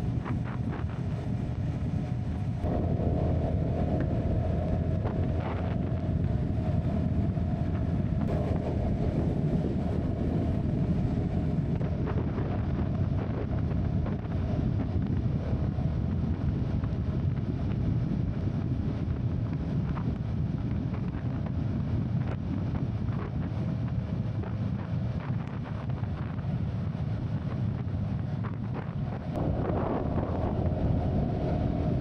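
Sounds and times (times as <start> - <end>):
motorcycle engine humming: 0.0 - 12.6
wind buffeting microphone: 0.0 - 32.0.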